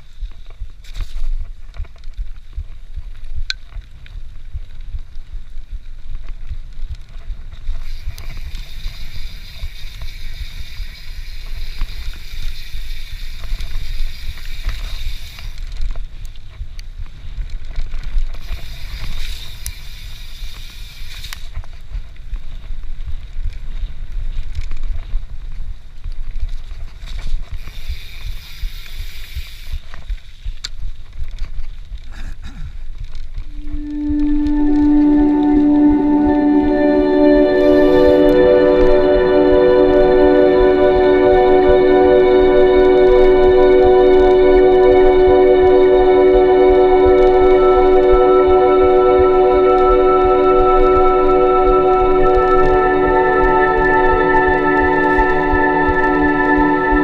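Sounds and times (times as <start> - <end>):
bike tyres and frame rattle: 0.0 - 33.6
sharp ticks: 7.7 - 16.9
high buzzing: 33.5 - 57.0.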